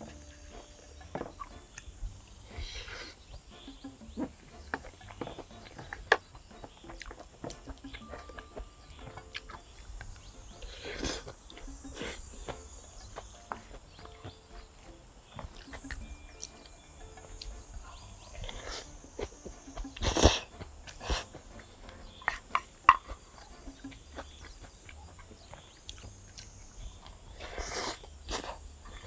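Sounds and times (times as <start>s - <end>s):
person chewing: 4.0s - 29.0s.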